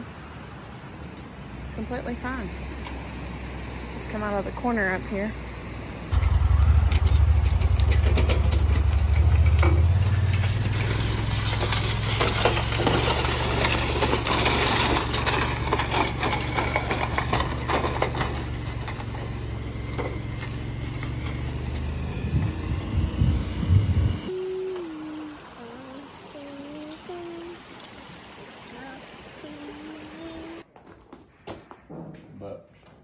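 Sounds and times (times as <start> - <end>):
engine running: 1.3 - 30.6
rattling and knocking: 6.2 - 20.7.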